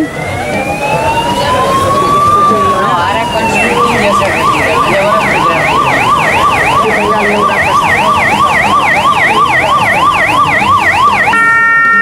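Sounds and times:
emergency vehicle siren yelping: 0.0s - 12.0s.

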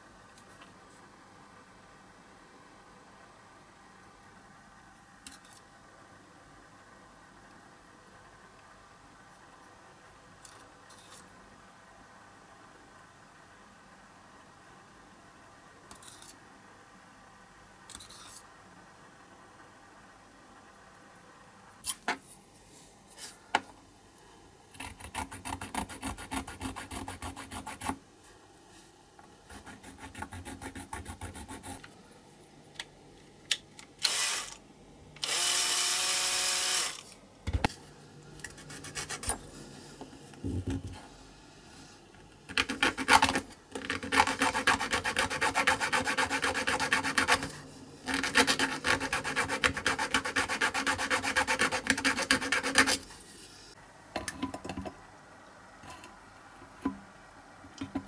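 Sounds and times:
hand file scraping metal: 42.6s - 53.0s.

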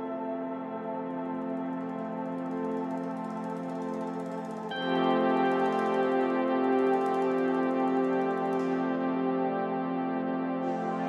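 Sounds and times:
sustained synthesizer chord: 0.0s - 11.0s.

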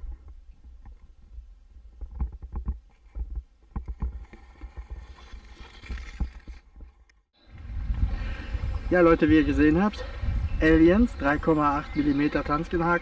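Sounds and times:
underwater knocks and clicks: 2.0s - 7.1s.

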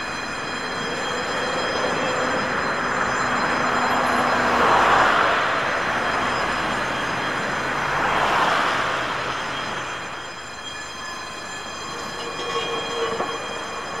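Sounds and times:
tram rolling over crossing: 0.0s - 14.0s
cars hissing past on wet road: 3.9s - 9.9s.

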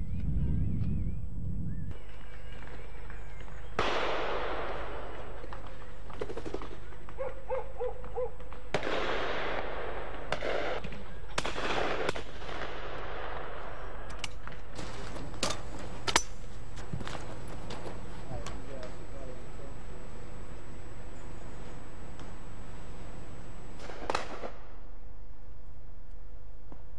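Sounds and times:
shotguns firing: 3.8s - 7.2s, 8.0s - 20.4s, 22.0s - 24.9s
rolling echo of gunshots: 3.8s - 7.4s, 8.0s - 16.5s, 23.7s - 25.0s.

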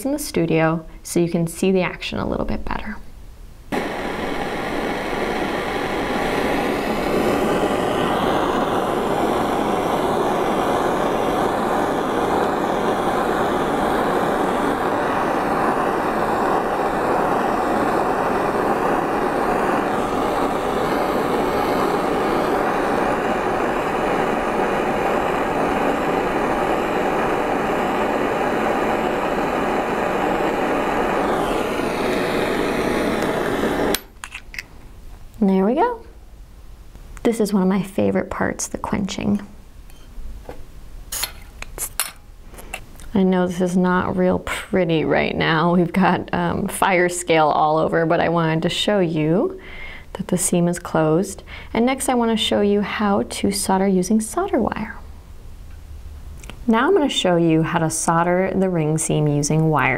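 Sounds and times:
soldering torch hissing: 3.7s - 34.6s, 41.1s - 43.7s.

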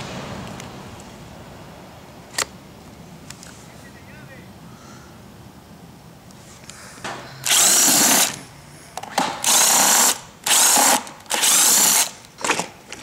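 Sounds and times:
cordless drill bursts: 7.4s - 8.4s, 9.4s - 12.2s.

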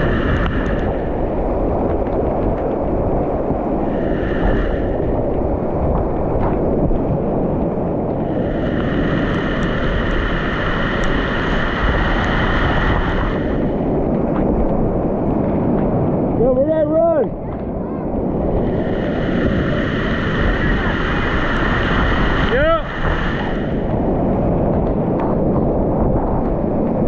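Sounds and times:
waves splashing over kayak: 0.0s - 27.0s
whitewater rapids rushing: 8.3s - 13.8s, 18.5s - 24.1s.

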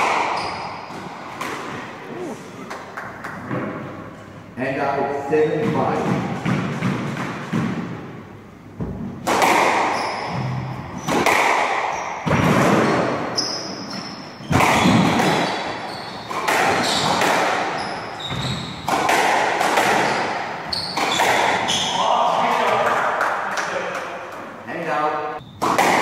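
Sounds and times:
squash racquet hitting ball: 0.0s - 2.0s, 5.6s - 8.2s, 8.8s - 13.3s, 14.4s - 22.8s, 25.6s - 26.0s
shoe squeaks on wooden floor: 17.8s - 18.9s.

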